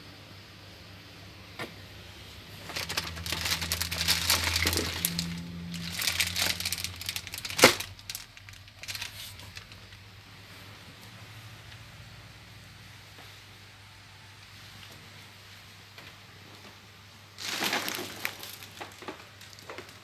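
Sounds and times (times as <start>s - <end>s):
low steady hum: 0.0s - 20.0s
plastic wrapping crinkling: 2.5s - 10.0s, 17.4s - 20.0s.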